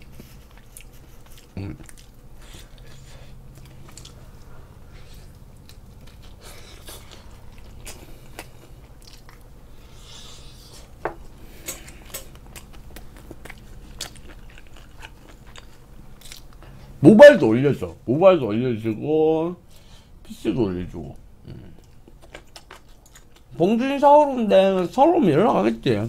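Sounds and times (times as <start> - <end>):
fried chicken being chewed: 0.0 - 16.9, 21.1 - 23.6
low steady hum: 0.0 - 26.0.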